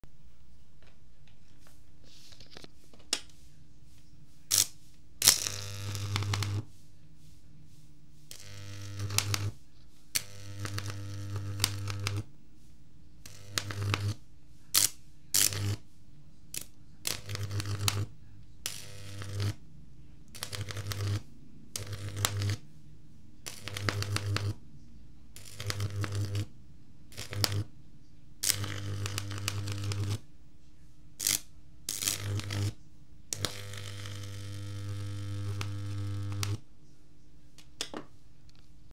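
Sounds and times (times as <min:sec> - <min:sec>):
faint transformer hum: 0:00.2 - 0:38.9
buzzing crackling electric arcs: 0:04.5 - 0:06.7, 0:08.3 - 0:12.3, 0:13.2 - 0:15.8, 0:16.5 - 0:19.6, 0:20.3 - 0:22.6, 0:23.4 - 0:24.6, 0:25.4 - 0:26.5, 0:27.1 - 0:27.7, 0:28.4 - 0:30.2, 0:31.2 - 0:36.6
sharp electric snaps: 0:04.5 - 0:06.7, 0:08.3 - 0:12.3, 0:13.2 - 0:15.8, 0:16.5 - 0:19.6, 0:20.3 - 0:21.2, 0:21.8 - 0:22.6, 0:23.5 - 0:24.6, 0:25.4 - 0:26.5, 0:27.1 - 0:27.7, 0:28.4 - 0:30.2, 0:31.2 - 0:36.6.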